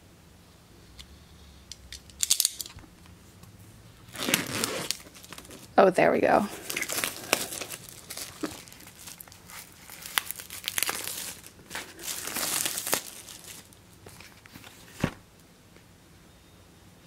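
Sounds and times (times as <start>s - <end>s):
plastic shrink wrap crinkling: 4.1s - 5.8s, 6.5s - 15.2s.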